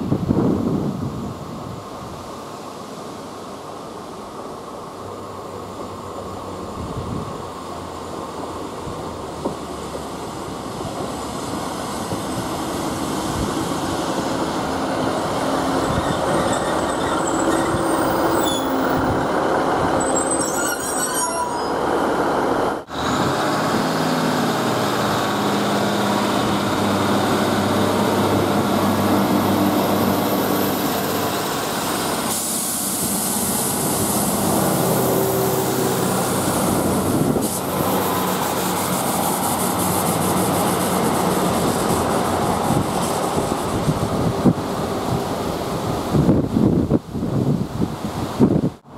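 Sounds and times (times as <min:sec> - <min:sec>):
diesel train engine humming: 0:03.4 - 0:46.0
faint brake squeal: 0:15.8 - 0:19.2, 0:20.0 - 0:21.9
hiss of air: 0:31.9 - 0:44.3.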